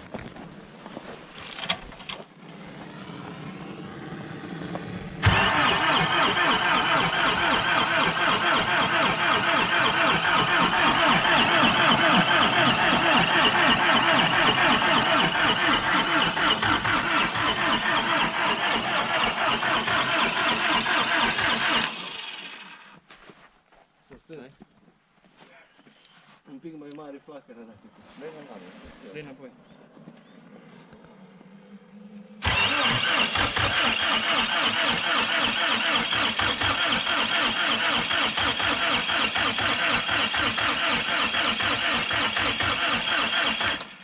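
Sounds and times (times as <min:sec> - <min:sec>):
diesel engine cranking: 0:00.1 - 0:23.0, 0:32.2 - 0:44.0.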